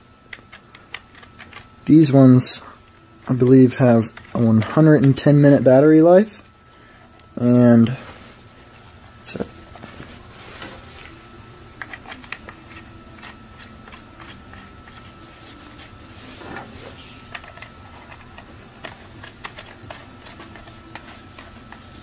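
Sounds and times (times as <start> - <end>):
soft rustles: 7.8 - 11.2.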